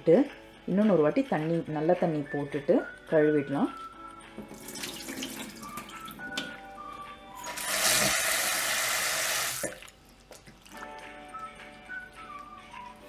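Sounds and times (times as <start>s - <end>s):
soft background music: 0.0s - 13.0s
tap water running into bowl: 4.4s - 6.5s, 7.4s - 10.7s.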